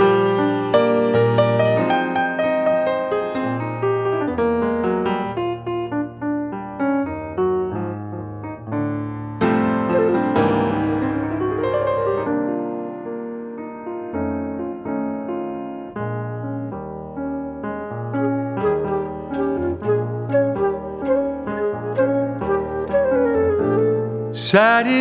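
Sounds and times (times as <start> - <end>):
jazz piano solo: 0.0 - 25.0.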